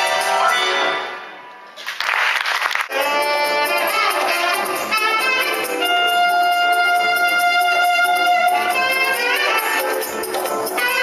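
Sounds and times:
live band music: 0.0 - 1.9, 2.9 - 11.0
saxophone melody: 2.9 - 11.0.

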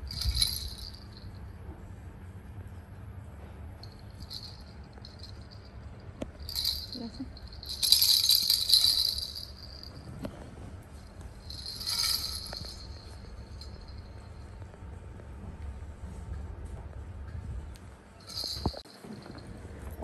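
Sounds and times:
baby rattle jingling: 0.0 - 1.2, 4.2 - 5.7, 6.4 - 10.0, 11.4 - 14.0, 18.3 - 18.8.

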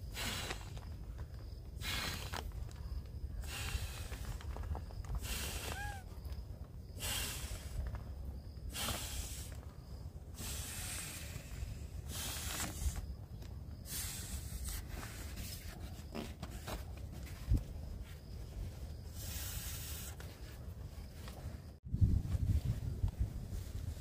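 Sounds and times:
puffs of breath into valve: 0.0 - 0.8, 1.8 - 2.4, 3.4 - 4.4, 5.2 - 6.0, 7.0 - 7.9, 8.7 - 9.6, 10.4 - 13.0, 13.8 - 15.2.

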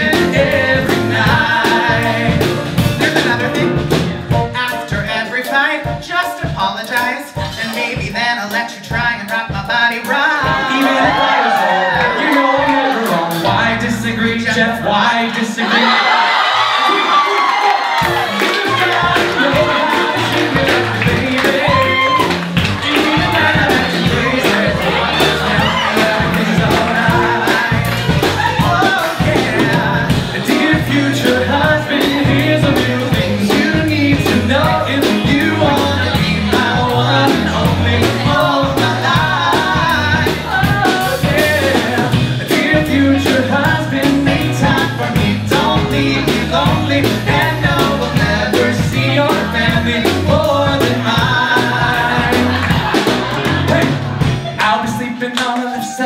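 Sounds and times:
men singing: 0.0 - 17.2, 18.0 - 56.0
live pop band playing: 0.0 - 56.0.

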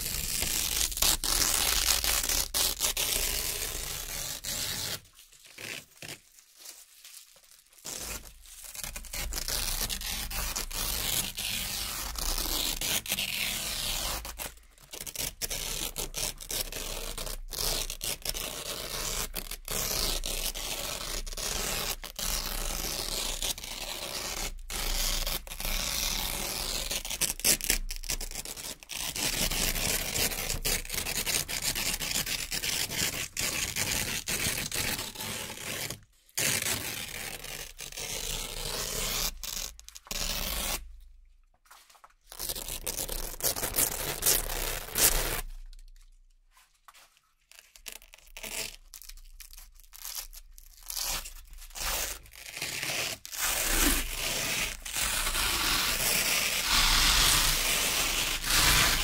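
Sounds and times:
velcro ripping apart: 0.0 - 41.0, 41.8 - 46.1, 47.0 - 59.0.

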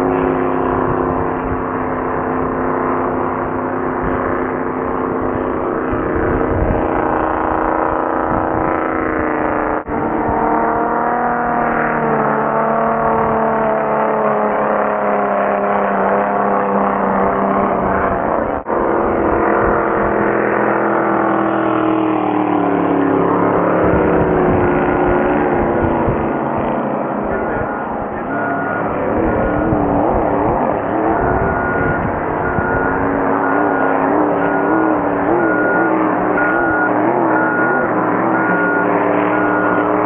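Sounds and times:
racing boat engines speeding past: 0.0 - 40.0.

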